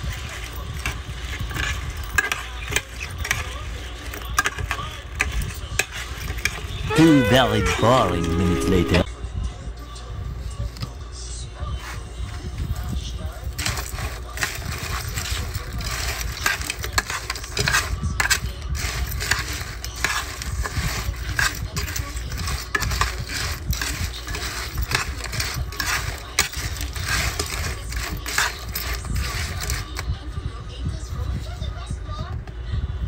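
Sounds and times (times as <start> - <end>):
crab shells clattering in a pan: 0.0 - 7.8, 12.7 - 30.1.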